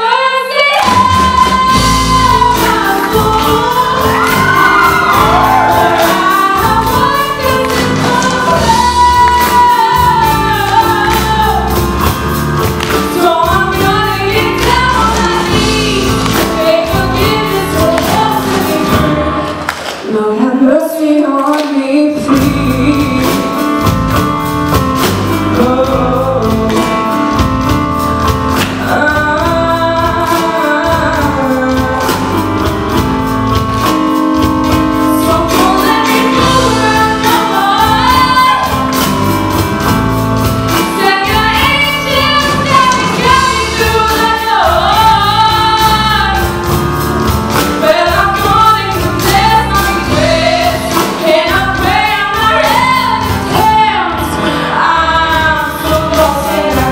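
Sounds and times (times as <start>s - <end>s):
woman singing: 0.0s - 12.2s, 12.8s - 24.0s, 25.3s - 27.7s, 28.6s - 33.1s, 34.7s - 39.1s, 40.7s - 46.8s, 47.5s - 56.9s
drum kit beat: 0.7s - 20.2s, 22.1s - 56.9s
electric bass guitar: 0.9s - 19.6s.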